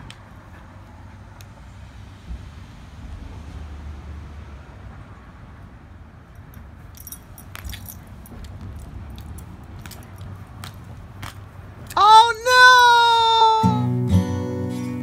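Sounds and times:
sharp clicks and jingles: 6.3 - 10.4.

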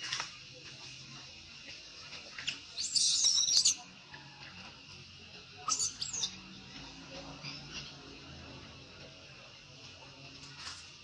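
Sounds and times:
baby monkey screaming: 2.4 - 3.8, 5.7 - 6.4.

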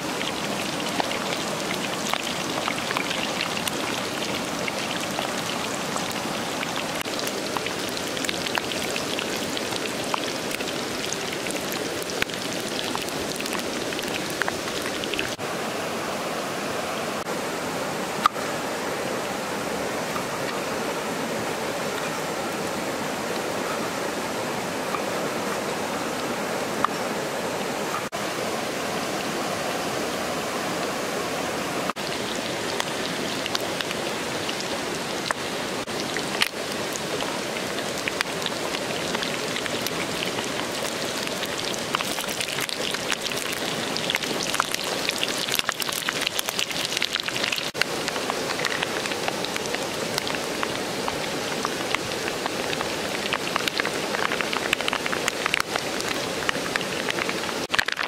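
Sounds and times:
hot oil sizzling: 0.0 - 15.4, 31.9 - 58.0
oil crackling pops: 37.6 - 58.0.

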